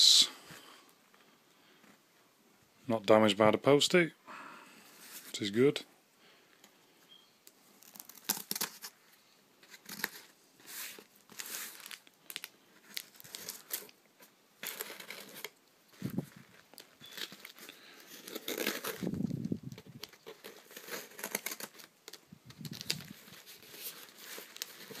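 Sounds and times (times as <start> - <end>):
packing tape ripping: 7.8 - 8.9, 16.7 - 25.0.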